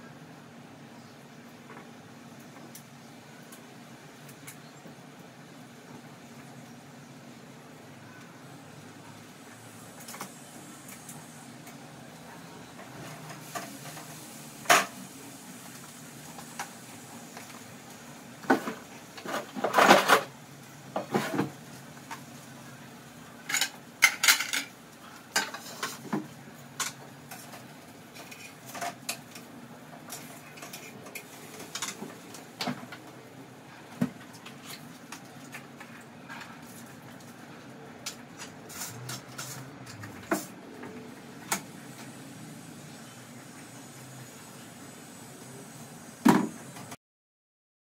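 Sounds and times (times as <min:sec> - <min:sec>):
pots and pans clattering: 0:18.5 - 0:20.3, 0:21.0 - 0:21.5, 0:23.5 - 0:24.7, 0:25.3 - 0:27.6.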